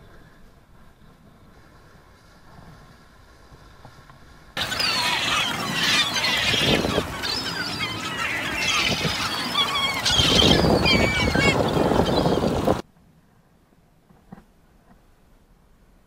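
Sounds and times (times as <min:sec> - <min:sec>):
gulls calling: 0:04.6 - 0:12.8.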